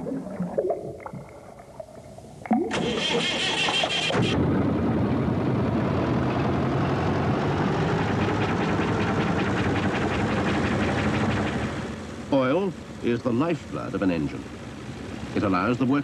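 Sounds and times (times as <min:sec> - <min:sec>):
engine droning: 0:02.7 - 0:16.0.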